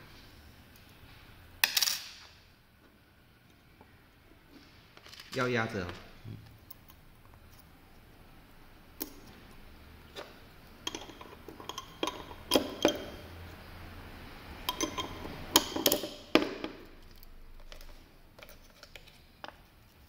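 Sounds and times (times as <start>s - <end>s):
metal parts clicking: 5.0s - 6.0s.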